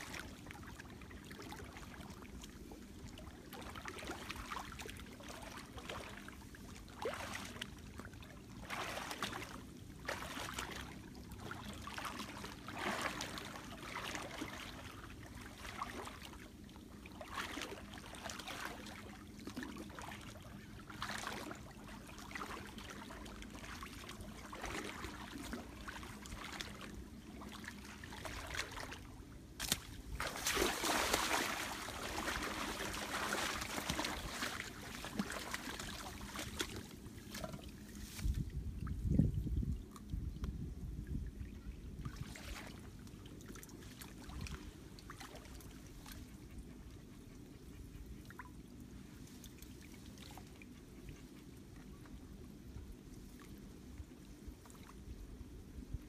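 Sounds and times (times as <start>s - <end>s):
footsteps wading through water: 0.0s - 40.1s, 42.0s - 46.6s
rustling and splashing in grass: 8.6s - 16.3s, 29.6s - 39.1s.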